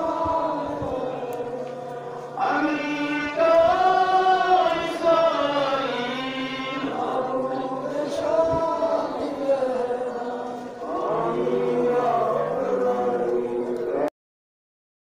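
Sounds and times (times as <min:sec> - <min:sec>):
men chanting a lament: 0:00.0 - 0:14.1.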